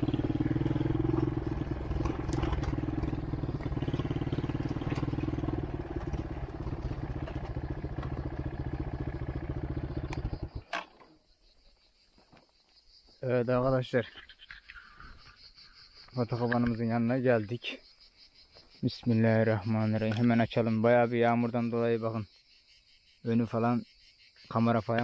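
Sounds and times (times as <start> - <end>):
atv engine running: 0.0 - 10.8.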